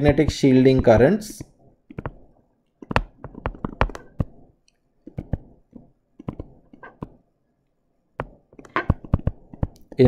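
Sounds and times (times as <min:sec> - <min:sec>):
stylus tapping on tablet screen: 0:01.9 - 0:07.2, 0:08.2 - 0:10.0.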